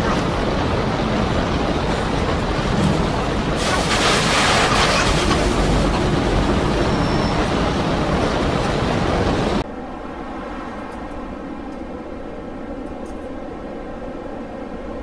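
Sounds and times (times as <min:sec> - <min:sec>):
storm wind buffeting microphone: 0:00.0 - 0:09.6
hissing surge of spray: 0:03.5 - 0:05.6.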